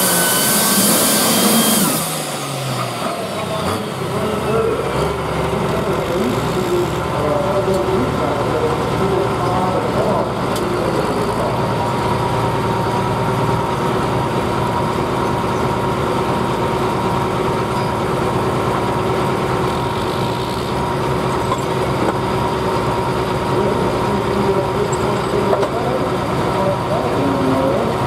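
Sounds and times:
diesel tractor engine idling: 0.0 - 28.0
steady whine: 0.0 - 28.0.

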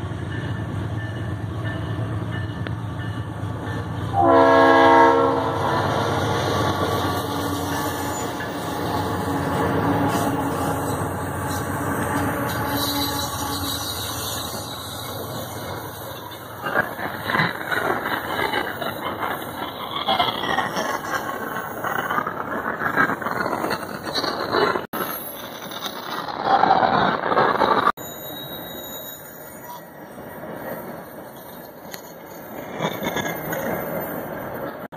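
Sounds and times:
diesel locomotive engines: 0.0 - 34.9
wheels rumbling on rails: 0.0 - 34.9
train horn blast: 4.1 - 6.0, 7.0 - 14.2.

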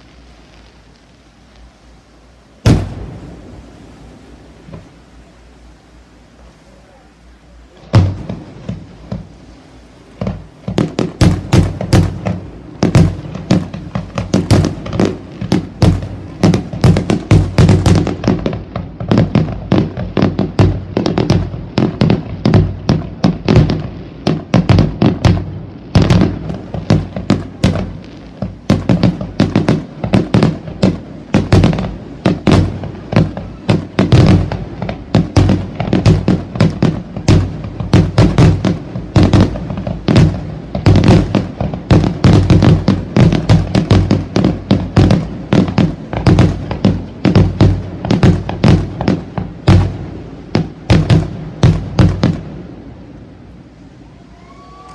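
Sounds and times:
fireworks bangs and cracks: 0.0 - 5.1, 7.7 - 53.6.

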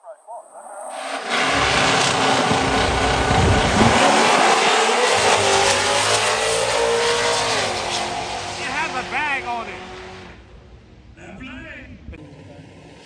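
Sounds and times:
car engines at full throttle: 0.9 - 11.1.

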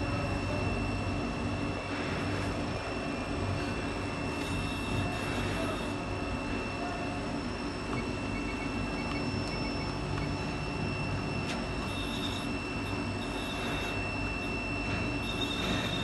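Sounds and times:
machine hum with high whine: 0.0 - 16.0.

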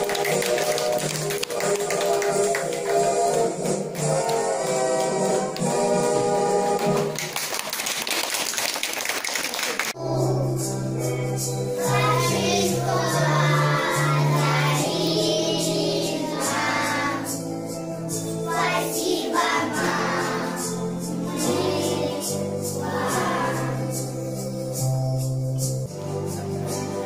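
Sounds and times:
instrumental backing music: 0.0 - 7.3, 10.0 - 27.0
children singing: 10.0 - 11.0, 11.7 - 17.5, 18.1 - 24.4.

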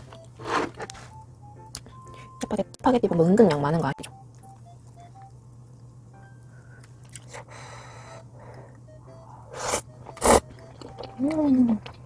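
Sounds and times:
soft eating noises: 4.3 - 12.0.

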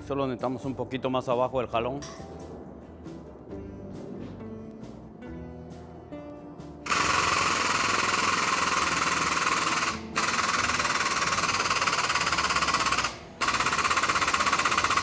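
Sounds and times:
pneumatic tool rattling: 6.8 - 15.0.

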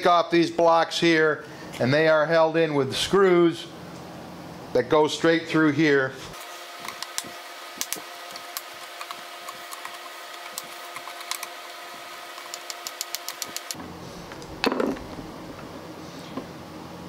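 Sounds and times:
steady hum: 0.0 - 17.0
screwdriver clicking and creaking: 6.8 - 11.7, 12.3 - 13.8.

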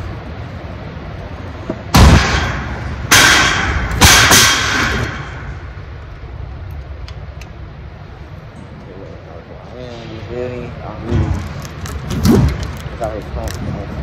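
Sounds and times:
loud bangs echoing: 1.9 - 5.8.

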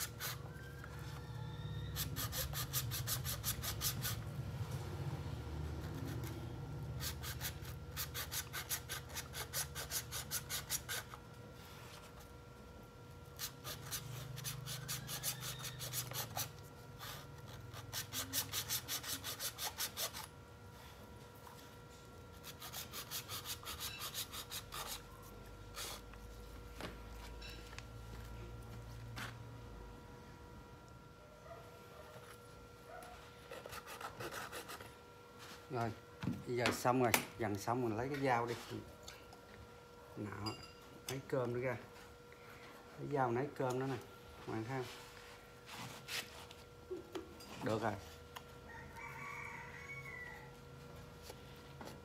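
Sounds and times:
saw rasping through coconut shell: 0.0 - 0.7, 1.4 - 4.3, 5.6 - 11.2, 13.4 - 20.3, 22.3 - 25.1, 33.5 - 34.9.

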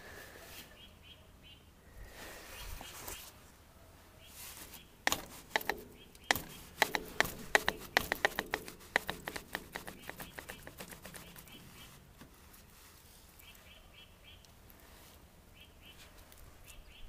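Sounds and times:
hand tool sharp clicks: 5.0 - 11.0.

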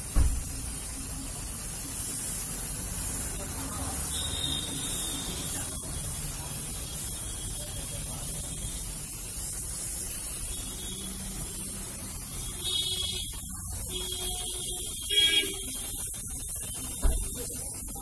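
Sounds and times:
spray paint can hissing: 0.0 - 18.0.

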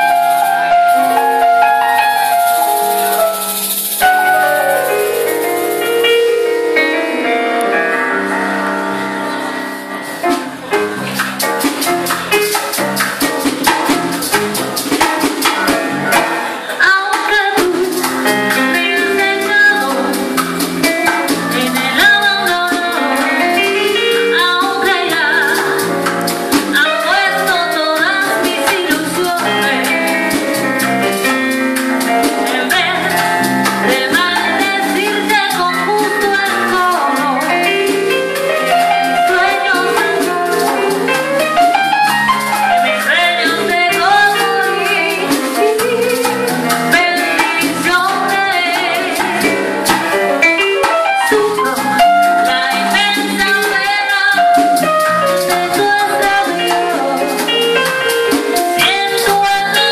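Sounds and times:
congas: 0.0 - 59.9
live jazz band playing: 0.0 - 59.9
woman singing into a microphone: 16.7 - 26.0, 26.7 - 30.3, 32.3 - 38.3, 38.9 - 41.3, 42.9 - 50.0, 51.2 - 59.9.

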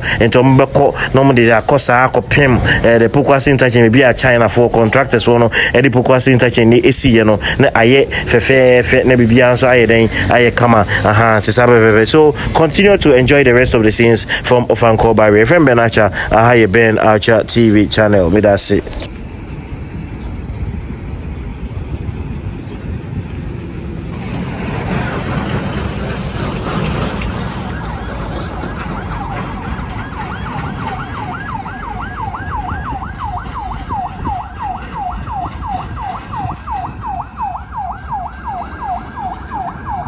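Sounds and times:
rush of road noise: 0.0 - 40.0
traffic: 0.0 - 40.0
wind noise: 0.0 - 40.0
ambulance siren yelp: 26.9 - 40.0.

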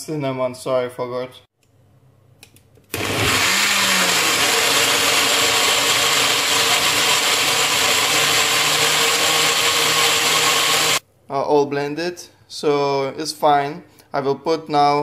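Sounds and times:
blender running: 2.9 - 11.0.

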